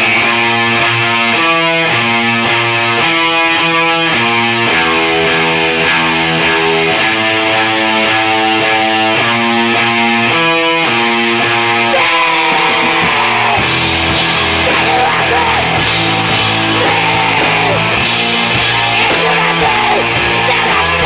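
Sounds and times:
electric guitar chords: 0.0 - 21.0
loud band music: 0.0 - 21.0.

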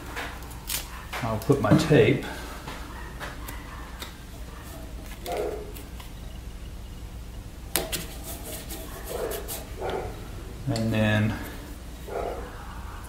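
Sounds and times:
tape crackle: 0.0 - 1.7, 3.2 - 6.2
steady low hum: 0.0 - 13.0.

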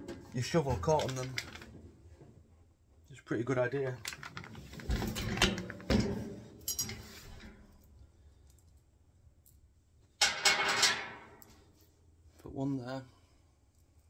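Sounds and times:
metal clanks and knocks: 0.0 - 1.7, 4.8 - 7.7, 10.2 - 11.4.

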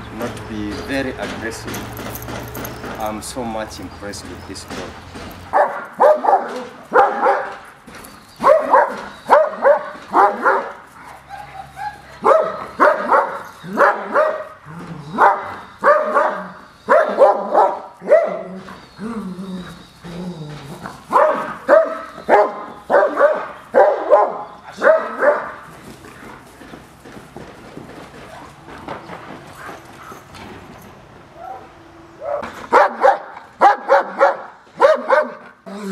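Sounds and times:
dog barking aggressively: 5.3 - 18.9, 20.9 - 26.3, 32.2 - 35.9.

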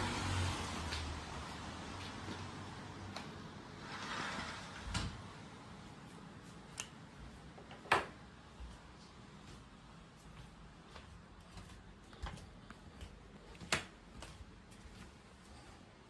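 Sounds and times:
knocks and clicks in a room: 4.8 - 16.0.

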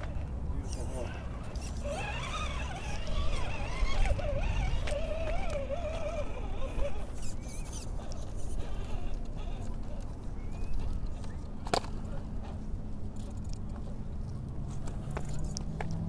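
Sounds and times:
electric motor whining: 0.0 - 10.1.

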